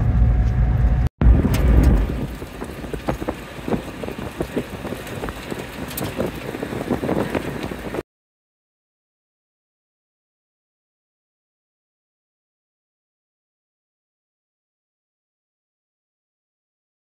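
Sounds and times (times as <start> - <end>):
road and tyre rumble: 0.0 - 8.0.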